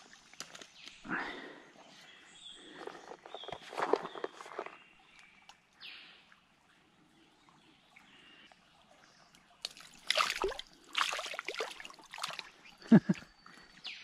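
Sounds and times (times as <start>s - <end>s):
fish splashing in water: 9.7s - 12.6s.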